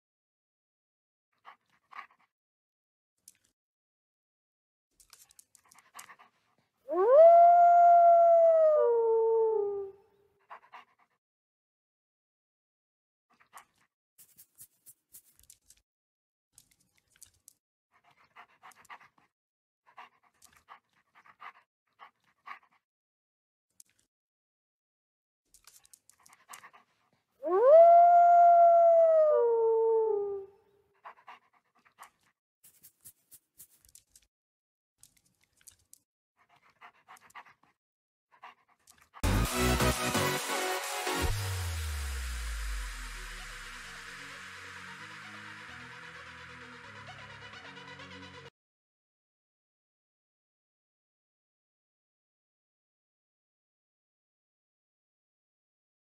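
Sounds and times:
wolf howl: 6.9s - 10.0s, 27.4s - 30.6s.

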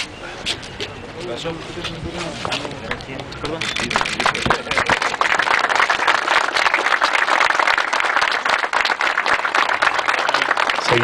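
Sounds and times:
crowd applauding: 3.7s - 11.0s.

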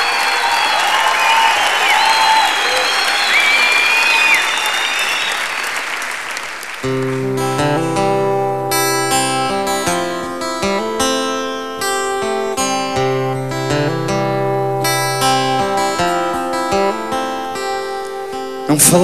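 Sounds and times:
audience applause: 0.0s - 7.9s
acoustic guitar strumming chords: 6.8s - 19.0s.

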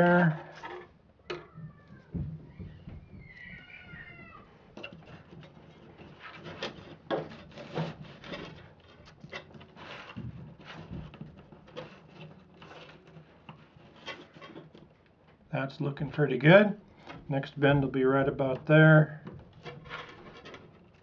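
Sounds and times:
paper rustling: 5.0s - 15.1s.

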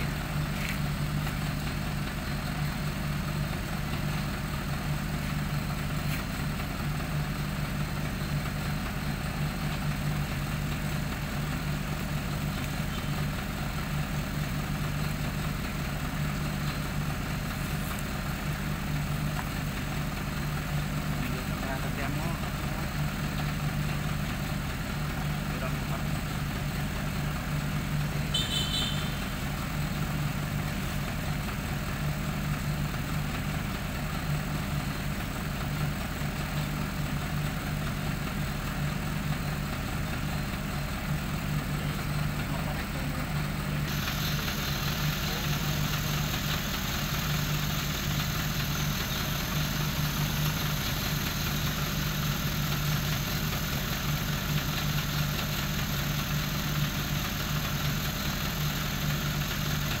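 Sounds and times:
low mechanical hum: 0.0s - 60.0s
hiss: 43.8s - 60.0s.

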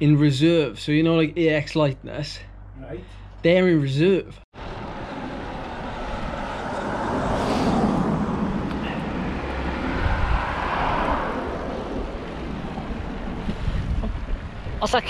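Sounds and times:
wind rushing over microphone: 4.6s - 15.0s
bicycle tyres on pavement: 9.2s - 13.8s.

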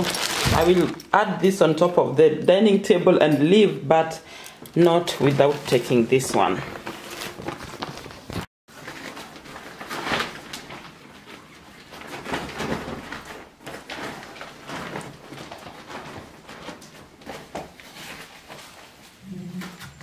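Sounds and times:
fabric bag rustling: 0.0s - 0.9s, 5.2s - 19.6s
plastic bags crinkling: 0.0s - 1.1s, 5.0s - 19.0s.

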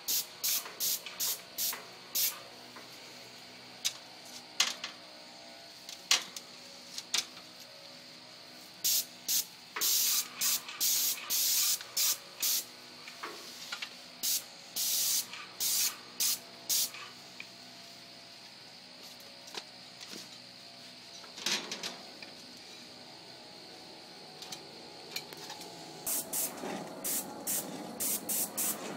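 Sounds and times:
spray gun hissing bursts: 0.0s - 2.4s, 8.8s - 12.8s, 13.4s - 17.1s, 26.0s - 28.9s
steady hum: 22.2s - 28.9s.

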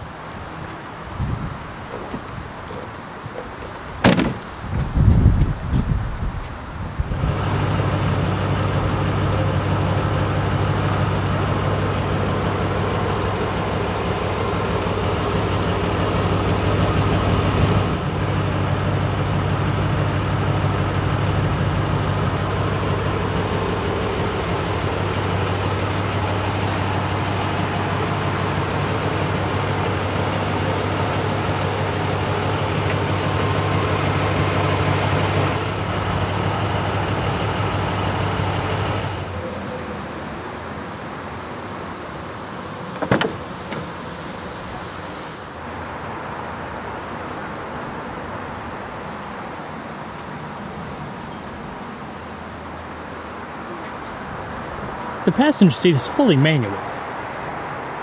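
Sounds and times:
car engine idling: 7.0s - 39.5s.

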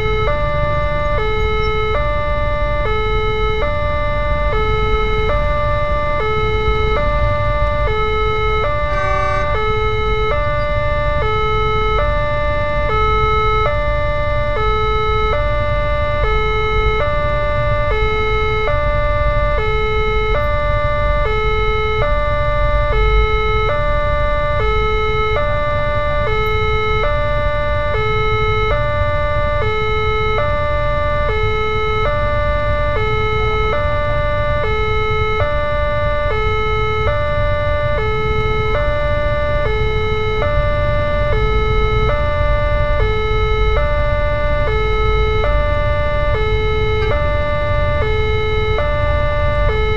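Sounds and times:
level crossing warning alarm: 0.0s - 49.9s.

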